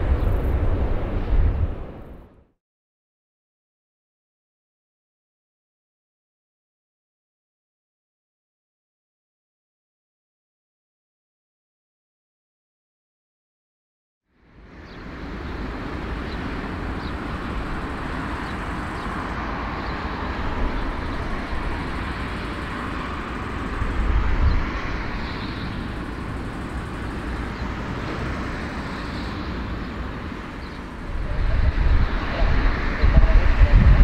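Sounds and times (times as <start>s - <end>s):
jet engines running: 0.0s - 2.3s, 14.5s - 34.0s.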